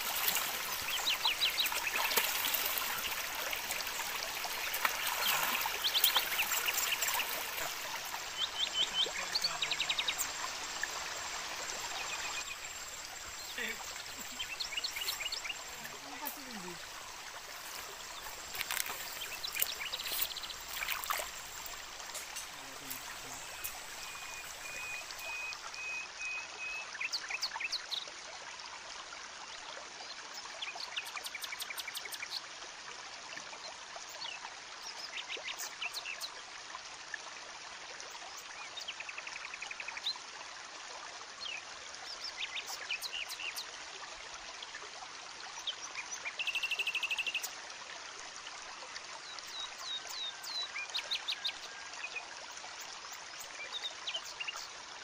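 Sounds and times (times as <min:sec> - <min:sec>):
stream trickling: 0:00.0 - 0:55.0.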